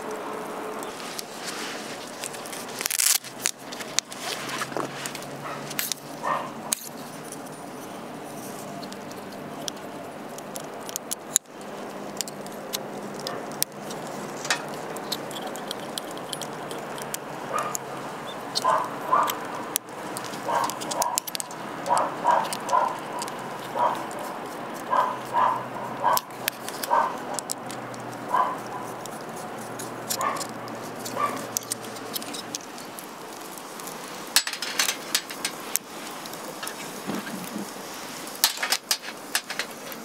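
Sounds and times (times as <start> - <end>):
dog barking: 5.4 - 6.7, 13.2 - 13.5, 17.5 - 17.8, 18.6 - 19.4, 20.4 - 21.3, 21.9 - 24.2, 24.9 - 26.3, 26.9 - 27.5, 28.3 - 29.0, 30.2 - 30.5, 31.2 - 31.5
metallic clinks of camp gear: 34.0 - 37.8, 38.4 - 40.0.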